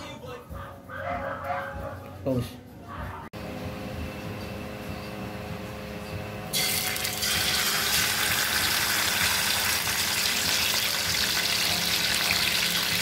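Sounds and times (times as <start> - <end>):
fish sizzling in hot oil: 6.6 - 13.0.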